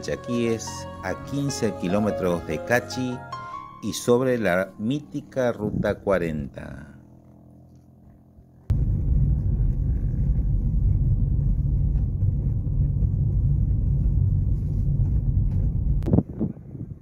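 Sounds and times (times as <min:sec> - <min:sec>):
car engine and road rumble: 0:07.0 - 0:16.2.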